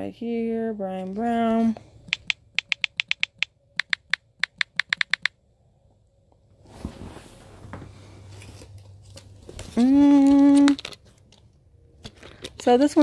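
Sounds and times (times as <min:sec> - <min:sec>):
phone keyboard tap clicks: 0:02.1 - 0:05.4.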